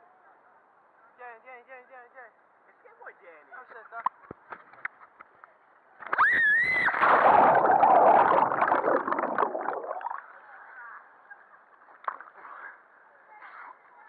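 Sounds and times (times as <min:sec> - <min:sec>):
splashing and bubbling water: 0:06.9 - 0:10.3.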